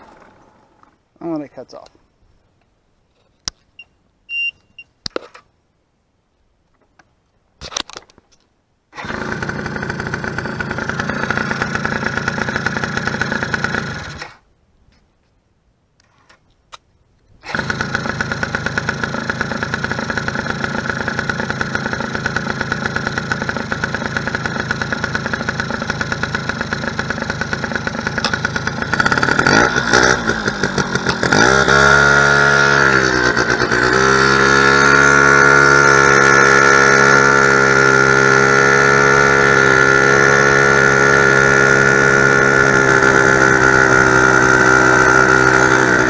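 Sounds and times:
quad two-stroke engine running: 0:09.0 - 0:14.4, 0:17.4 - 0:46.0.

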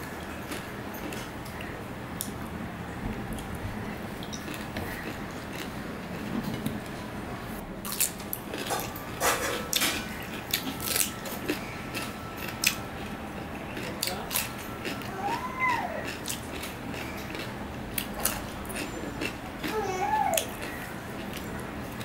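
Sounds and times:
person chewing cucumber: 0:04.2 - 0:06.3, 0:07.8 - 0:22.0.

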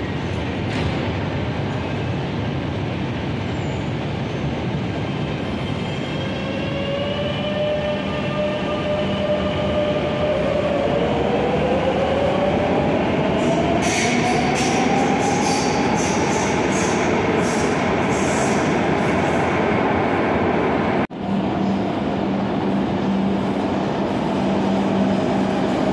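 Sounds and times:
train running noise: 0:00.0 - 0:25.9.

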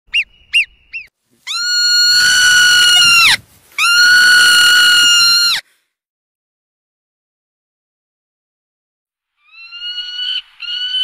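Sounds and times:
parrot chirping and calling: 0:00.1 - 0:01.6.

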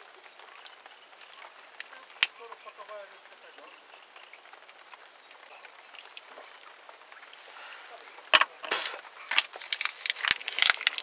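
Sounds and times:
faint background hiss: 0:00.0 - 0:11.0
rustling: 0:00.8 - 0:11.0.

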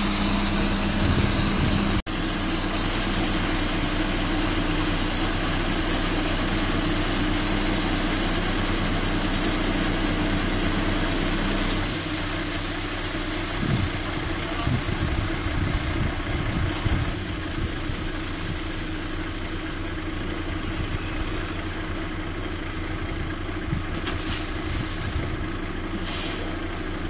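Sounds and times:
hydraulic tipper body rising: 0:00.0 - 0:07.4
diesel truck engine running: 0:00.0 - 0:27.0.

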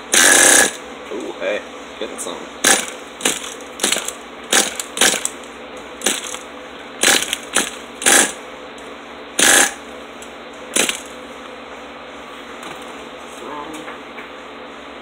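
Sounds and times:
small engine turning over: 0:00.1 - 0:00.8, 0:02.6 - 0:05.4, 0:07.0 - 0:08.4, 0:09.4 - 0:09.8, 0:10.8 - 0:11.1.

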